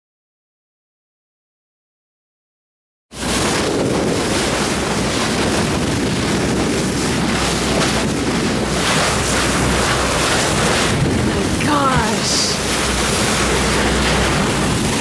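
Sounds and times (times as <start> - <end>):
water rushing along boat hull: 3.1 - 15.0
steady low rumble: 3.2 - 15.0
wind buffeting microphone: 3.2 - 15.0.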